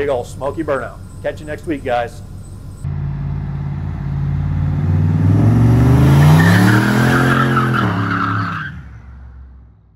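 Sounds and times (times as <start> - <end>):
engine accelerating hard: 2.8 - 9.8
tyres squealing: 6.1 - 8.7.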